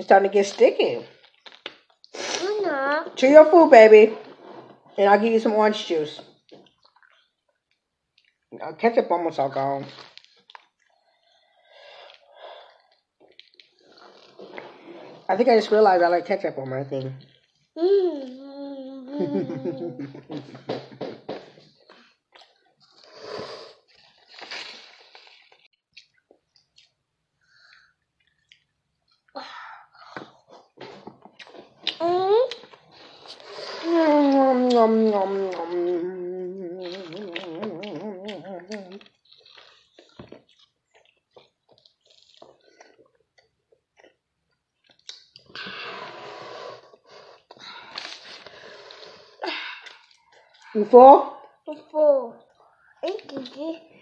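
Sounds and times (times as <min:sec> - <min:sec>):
chewing mouth clicks and smacks: 0:01.2 - 0:02.2, 0:06.4 - 0:08.5, 0:10.0 - 0:11.0, 0:12.8 - 0:14.3, 0:24.5 - 0:27.0, 0:27.6 - 0:29.3, 0:36.8 - 0:44.2, 0:44.8 - 0:45.5
person humming with full mouth: 0:17.8 - 0:20.3, 0:33.9 - 0:39.0.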